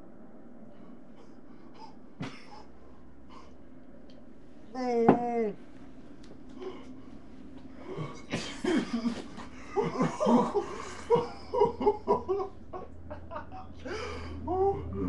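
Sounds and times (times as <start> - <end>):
man coughing harshly: 2.2 - 2.7, 7.9 - 11.7
man laughing: 7.8 - 15.0.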